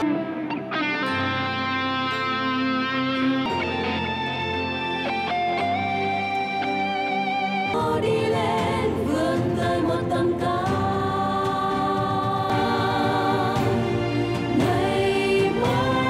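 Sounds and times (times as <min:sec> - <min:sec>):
choir singing held chords: 0:07.3 - 0:16.0.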